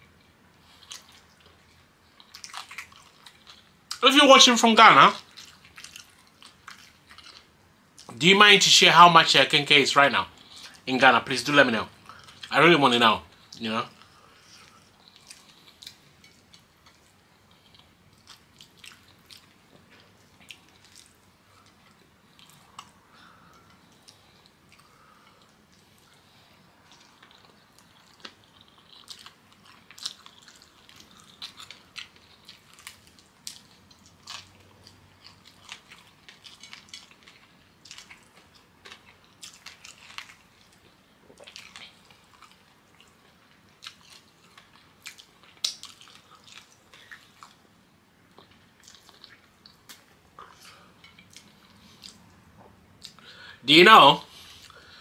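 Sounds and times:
person chewing with mouth clicks: 13.4s - 47.6s, 48.3s - 53.3s.

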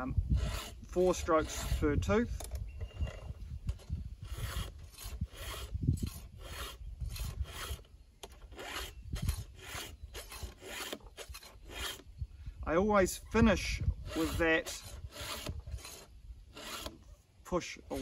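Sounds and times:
file rasping on saw chain: 0.0s - 2.1s, 3.7s - 12.1s, 13.8s - 17.0s.

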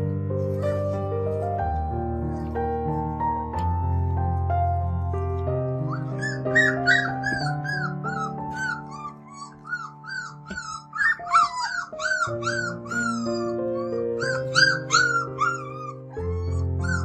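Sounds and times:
background music with chords: 0.0s - 17.0s
puppies whining and yipping: 5.6s - 17.0s.

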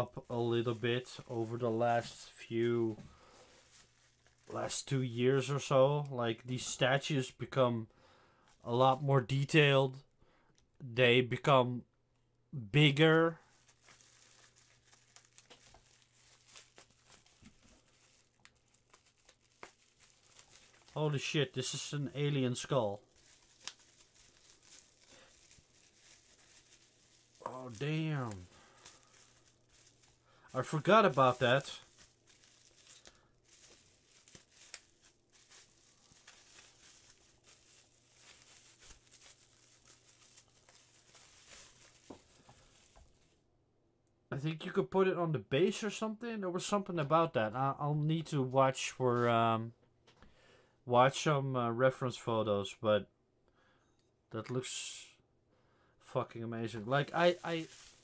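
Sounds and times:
bubble wrap crinkling: 0.0s - 7.2s, 8.4s - 9.6s, 12.8s - 43.4s, 56.7s - 58.0s.

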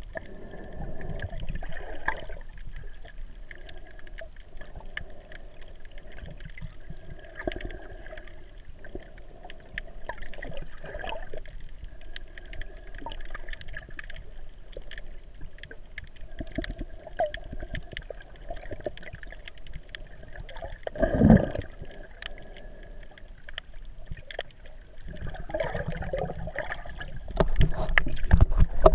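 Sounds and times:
muffled underwater water movement: 0.0s - 28.9s
faint clicks: 2.5s - 25.3s.

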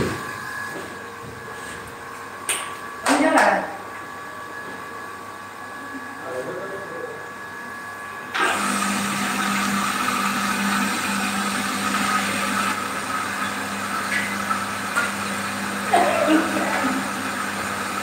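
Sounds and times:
pump motor humming: 8.3s - 18.0s.

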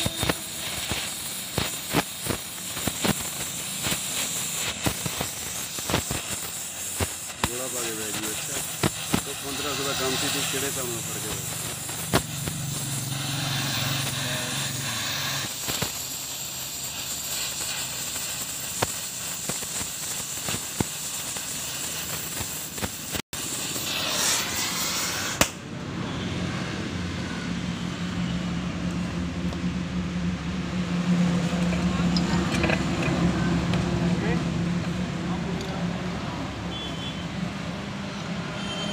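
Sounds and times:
sharp crackling pops: 0.0s - 25.6s
welding torch flame hissing: 0.0s - 25.6s.

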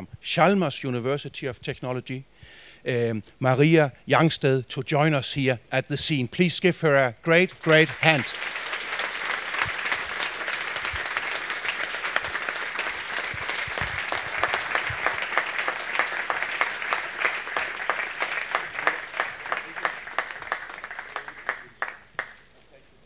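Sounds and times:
audience applauding: 7.3s - 22.5s.

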